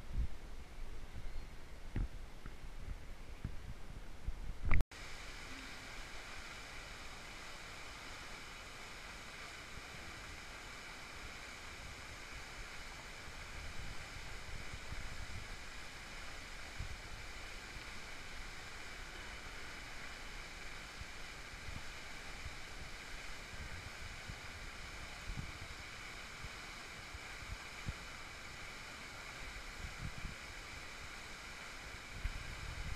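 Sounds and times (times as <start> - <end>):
wind bumps on microphone: 0.0 - 0.4, 29.8 - 30.4, 32.1 - 32.9
water feature rushing: 5.0 - 32.9.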